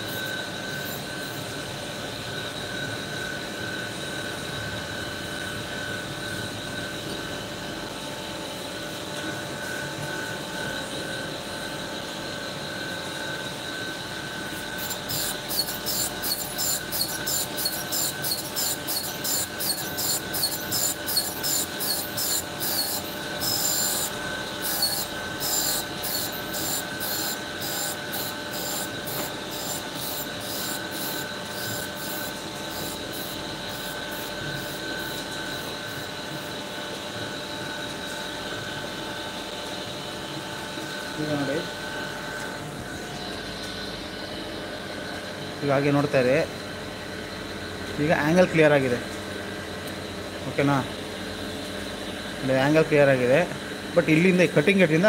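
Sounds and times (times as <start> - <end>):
grinder whining: 12.9 - 38.9.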